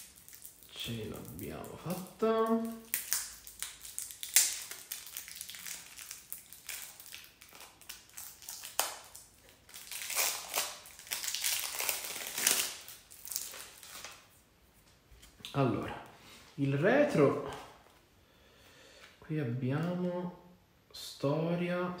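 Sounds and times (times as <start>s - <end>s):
plastic wrap crinkling: 0.0s - 15.5s.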